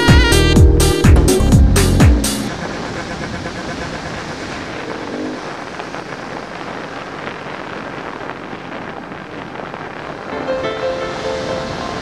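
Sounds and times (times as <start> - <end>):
music: 0.0 - 2.5, 10.3 - 12.0
wind on microphone: 0.0 - 12.0.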